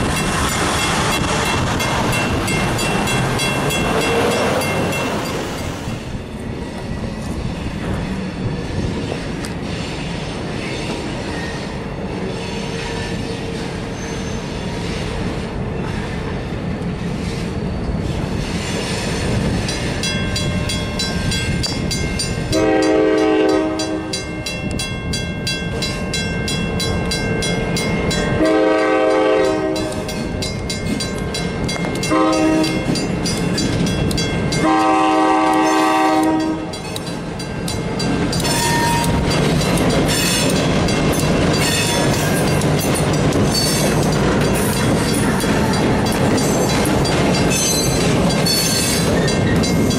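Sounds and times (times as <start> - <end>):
crossing bell ringing: 0.0 - 6.6, 19.6 - 49.9
wheels clacking over rail joints: 0.0 - 6.9, 29.7 - 49.9
locomotive engines rumbling: 0.0 - 49.9
locomotive horn blasts: 22.5 - 24.3, 28.3 - 30.1, 32.1 - 32.9, 34.6 - 36.8, 38.5 - 39.2.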